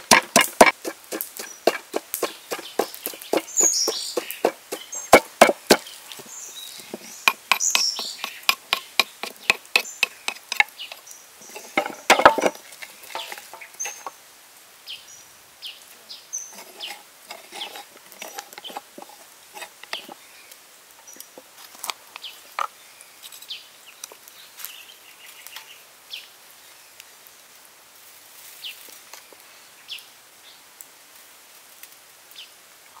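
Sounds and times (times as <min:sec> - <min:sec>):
pestle pounding in wooden mortar: 0:00.0 - 0:05.9, 0:06.9 - 0:11.0, 0:11.6 - 0:14.1
birds chirping: 0:00.0 - 0:14.2, 0:14.8 - 0:21.4
spoon scraping paste: 0:00.1 - 0:05.9, 0:06.8 - 0:14.1, 0:16.5 - 0:20.2.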